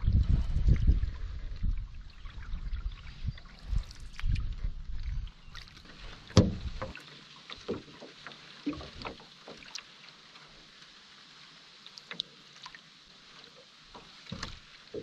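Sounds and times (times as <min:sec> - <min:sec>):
hollow knocks against a canoe: 0:05.5 - 0:09.8, 0:13.9 - 0:15.0.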